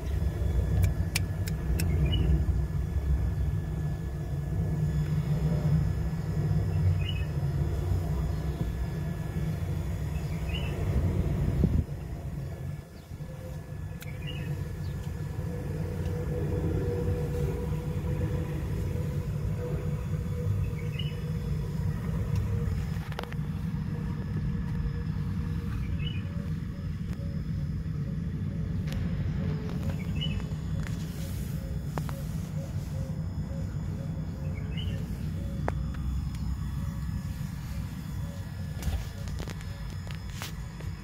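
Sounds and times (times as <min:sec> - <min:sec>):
low rumble: 0:00.0 - 0:32.2.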